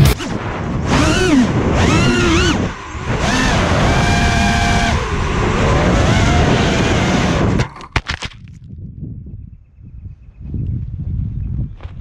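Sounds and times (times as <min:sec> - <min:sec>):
drone motors whining: 0:00.0 - 0:07.7.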